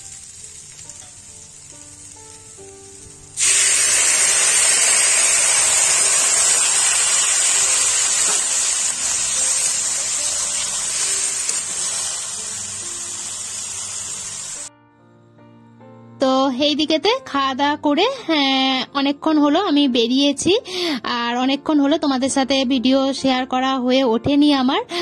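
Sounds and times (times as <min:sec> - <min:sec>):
water sizzling in hot pan: 0:00.0 - 0:14.7.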